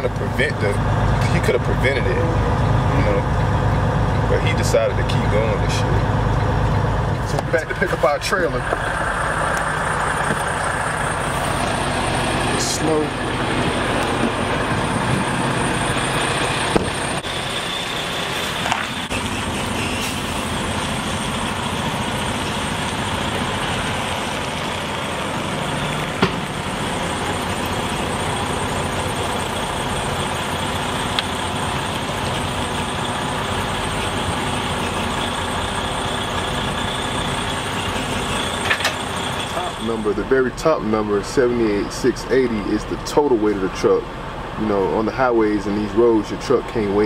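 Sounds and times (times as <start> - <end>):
diesel truck engine running: 0.0 - 47.0.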